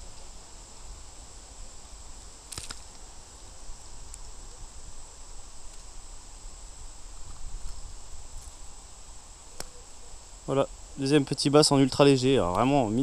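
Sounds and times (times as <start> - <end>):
insects trilling: 0.0 - 13.0.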